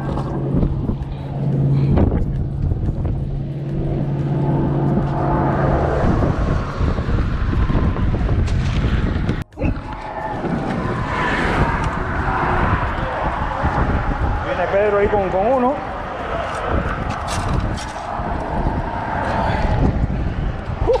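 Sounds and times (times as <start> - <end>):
engine hum: 0.0 - 21.0
traffic rumble: 0.0 - 21.0
wind: 0.0 - 21.0.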